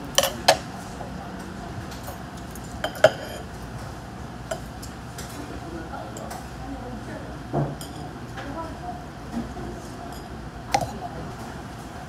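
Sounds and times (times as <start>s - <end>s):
spoon clinking against dishes: 2.8s - 3.4s.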